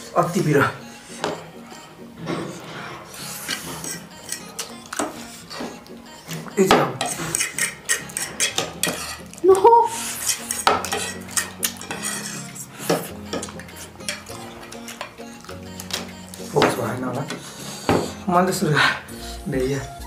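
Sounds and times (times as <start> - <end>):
cutlery clinking on ceramic plates: 3.4 - 5.7, 6.3 - 15.2.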